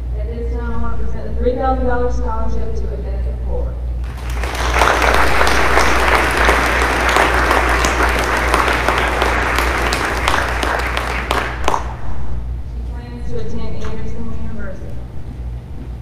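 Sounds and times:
audience applauding: 0:04.0 - 0:12.1.

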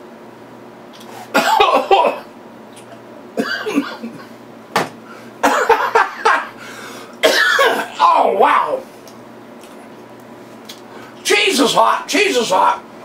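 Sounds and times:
man coughing and huffing: 0:01.3 - 0:02.3, 0:03.4 - 0:04.3, 0:05.4 - 0:06.6, 0:07.2 - 0:08.1.

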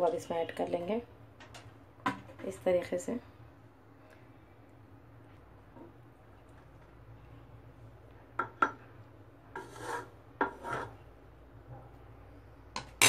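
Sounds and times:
spoon scraping through rice: 0:09.5 - 0:11.0.

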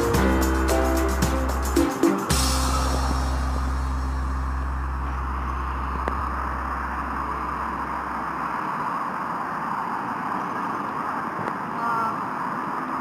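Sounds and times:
cars driving past: 0:00.1 - 0:13.0
low steady hum: 0:02.3 - 0:12.1.

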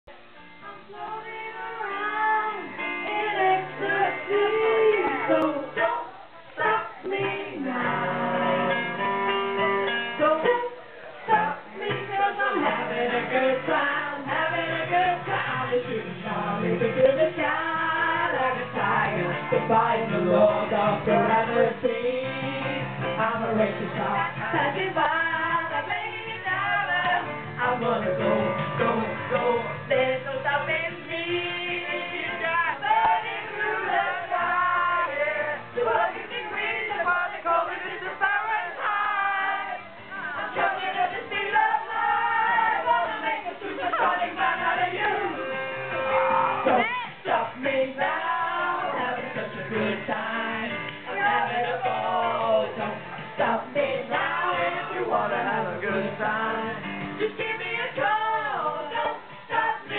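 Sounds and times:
music with singing voices: 0:00.1 - 0:59.9.

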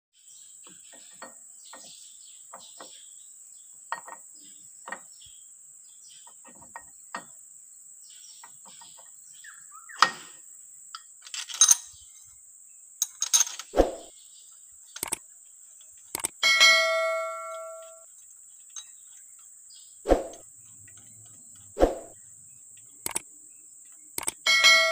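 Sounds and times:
metallic clinks and knocks: 0:11.2 - 0:12.4, 0:13.0 - 0:13.7, 0:16.0 - 0:19.4
bell-like chime: 0:16.4 - 0:18.0, 0:24.5 - 0:24.9.

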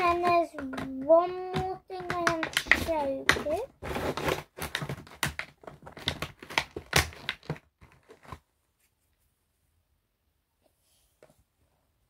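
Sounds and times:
plastic packaging crinkling: 0:02.0 - 0:08.4.

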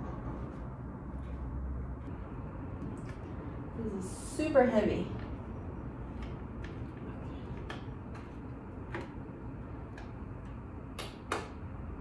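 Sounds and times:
office chair plastic clicks and taps: 0:09.9 - 0:11.6.

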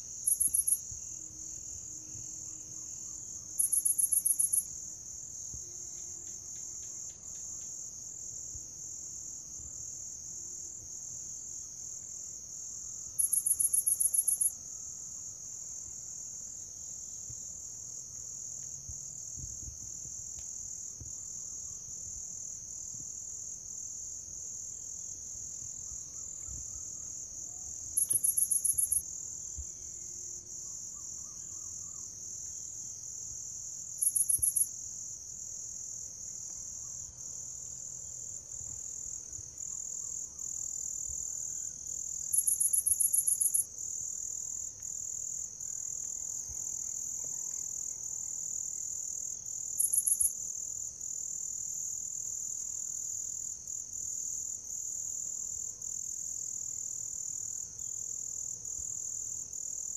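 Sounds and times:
crickets chirping: 0:00.0 - 0:59.9
nearer insect trilling: 0:00.2 - 0:00.9, 0:03.5 - 0:04.7, 0:13.2 - 0:14.5, 0:27.9 - 0:29.0, 0:34.0 - 0:34.7, 0:42.3 - 0:43.7, 0:49.8 - 0:50.3.

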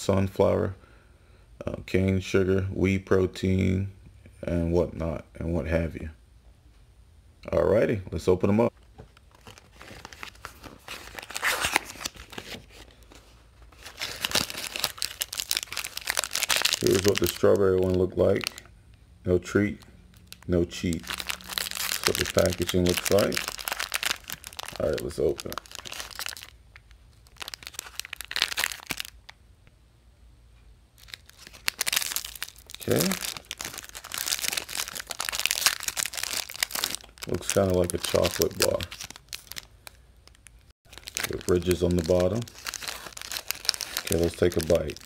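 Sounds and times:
wrapper being torn and crinkled: 0:09.2 - 0:13.0, 0:13.7 - 0:18.6, 0:20.1 - 0:29.4, 0:31.0 - 0:45.0.

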